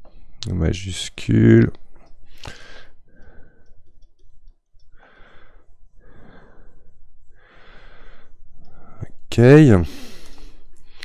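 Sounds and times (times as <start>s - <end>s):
person breathing: 2.2s - 4.0s, 4.8s - 9.0s, 9.9s - 11.0s.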